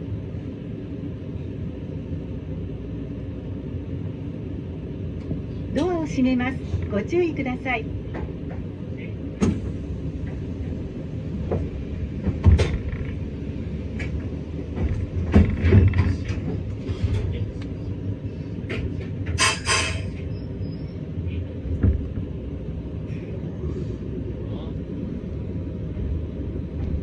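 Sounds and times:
train rumbling past: 0.0s - 27.0s
wheels clunking over rails: 8.0s - 17.8s.

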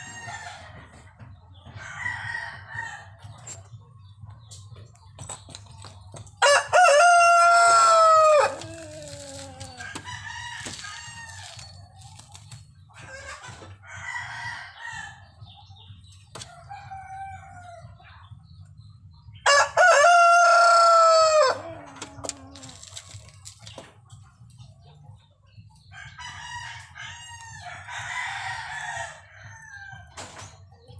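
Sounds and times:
rooster crowing: 6.4s - 11.6s, 19.4s - 22.8s
chicken calls: 6.4s - 13.7s.

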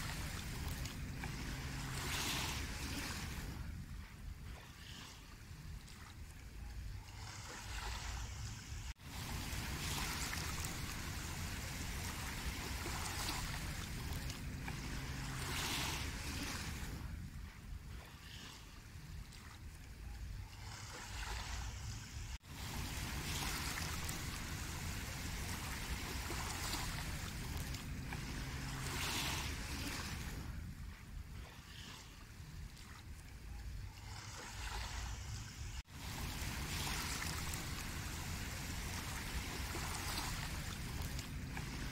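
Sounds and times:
steady low rumble: 0.0s - 31.8s
waves washing onto a sandy beach: 0.0s - 41.9s.

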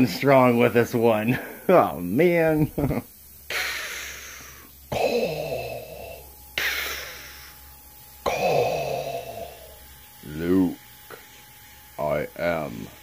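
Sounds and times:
hissing respirator breathing: 1.2s - 2.0s, 3.2s - 10.1s.

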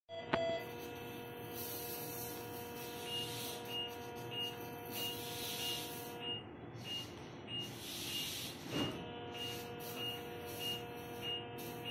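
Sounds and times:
steady electronic tone: 0.4s - 11.9s
short high beeps: 3.1s - 11.9s.

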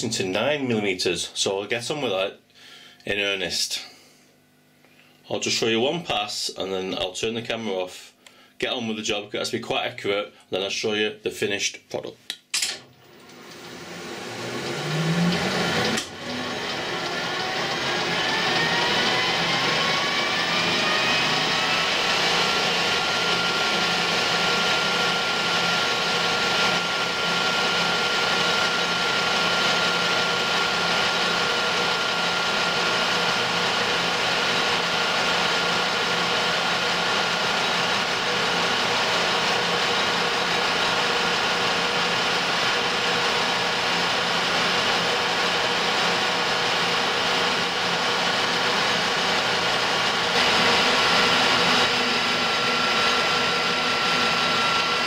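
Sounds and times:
lathe starting clunk: 12.6s - 20.0s
lathe gear whine: 13.0s - 55.0s.

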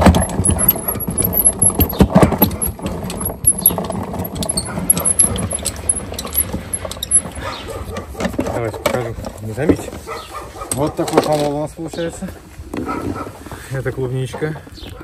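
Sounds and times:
hand-cranked crusher crunching bait: 0.0s - 10.0s.

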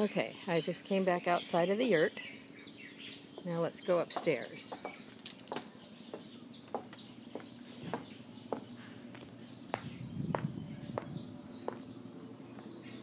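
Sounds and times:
birds chirping: 0.0s - 13.0s
footsteps on wooden deck and stairs: 3.3s - 12.8s.

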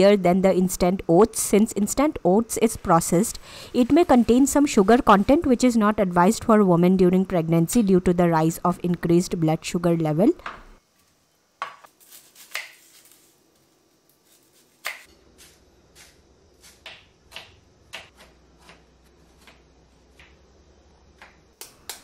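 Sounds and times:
knife chopping on wooden board: 16.0s - 19.6s.

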